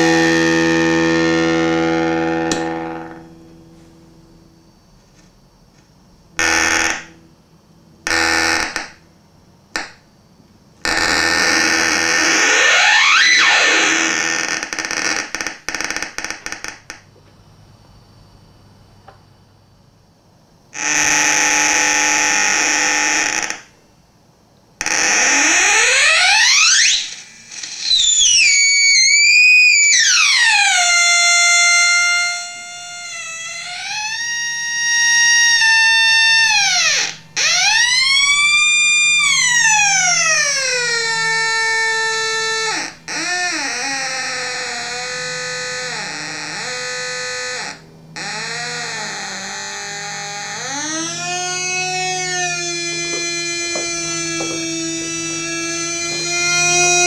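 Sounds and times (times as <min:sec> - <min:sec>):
distorted fuzz bursts: 0:00.0 - 0:09.0
fuzz pedal oscillating tone: 0:00.0 - 0:09.1, 0:44.8 - 0:57.0.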